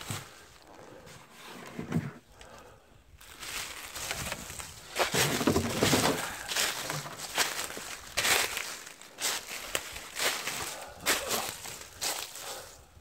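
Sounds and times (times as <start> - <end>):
footsteps in dry leaves: 3.2 - 12.8.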